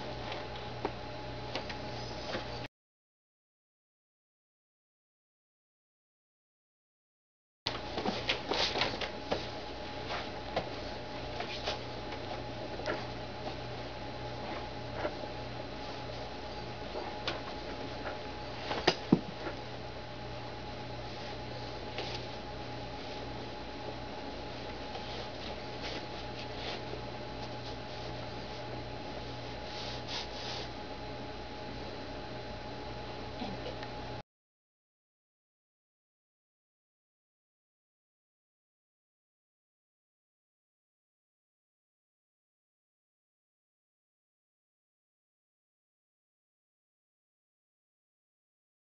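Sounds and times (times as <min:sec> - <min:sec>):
steady low hum: 0:00.0 - 0:02.7, 0:07.7 - 0:34.2.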